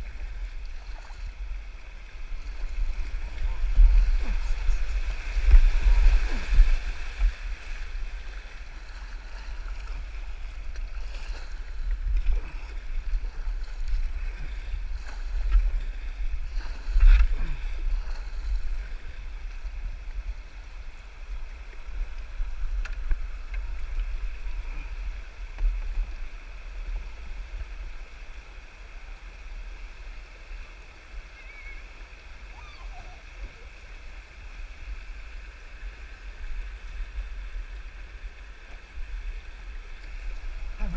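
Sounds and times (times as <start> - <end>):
paddle strokes splashing: 0.0 - 27.8
steady low rumble: 0.0 - 28.0
water rushing over rocks: 0.0 - 40.9.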